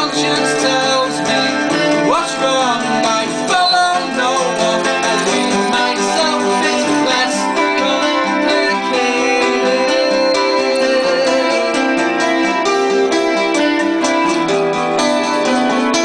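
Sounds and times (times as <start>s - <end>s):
man singing into a microphone: 0.0s - 12.7s
acoustic guitar playing: 0.0s - 16.0s.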